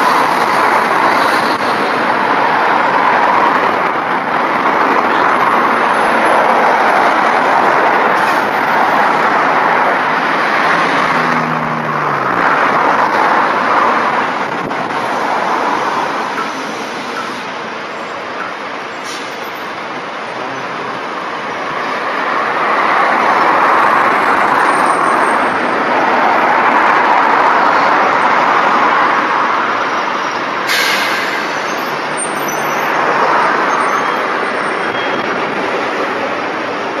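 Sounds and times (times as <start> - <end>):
diesel buses running: 0.0 - 37.0
traffic noise: 0.0 - 37.0
air-brake hiss: 30.6 - 31.7.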